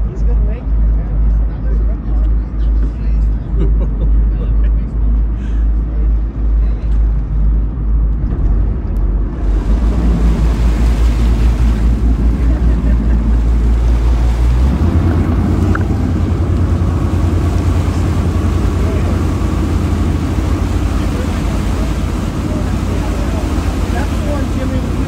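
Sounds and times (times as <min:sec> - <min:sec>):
boat engine droning: 0:00.0 - 0:25.0
wind: 0:00.0 - 0:25.0
water noise: 0:08.0 - 0:25.0.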